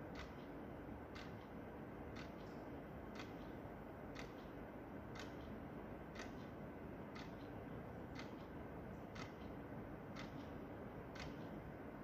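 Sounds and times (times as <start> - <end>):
wall clock ticking: 0.1 - 1.5, 2.1 - 2.5, 3.1 - 3.5, 4.1 - 11.6.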